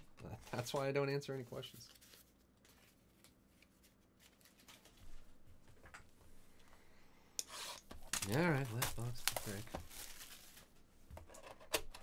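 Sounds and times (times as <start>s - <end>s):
cards and paper rustling: 0.3s - 5.2s, 8.0s - 10.7s.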